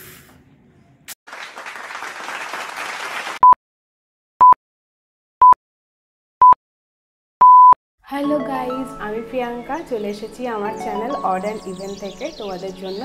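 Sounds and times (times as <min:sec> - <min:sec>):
applause: 0:01.3 - 0:03.4
short countdown beeps: 0:07.4 - 0:07.8.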